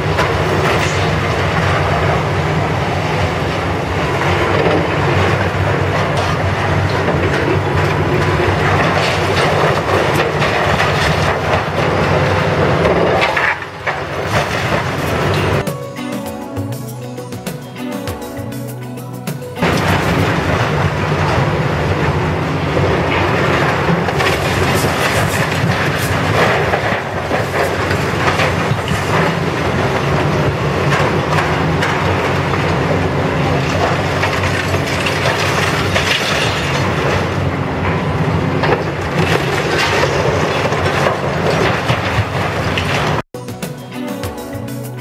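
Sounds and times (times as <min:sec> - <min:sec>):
heavy machine engine running: 0:00.0 - 0:43.2
concrete and debris crashing: 0:04.2 - 0:15.8, 0:19.3 - 0:37.5, 0:38.6 - 0:43.2.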